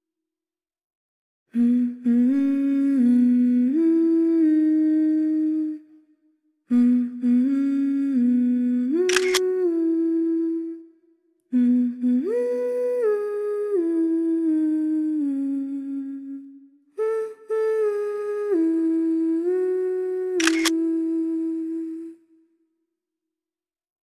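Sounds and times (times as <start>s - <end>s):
person humming a melody: 1.5s - 6.0s, 6.7s - 22.5s.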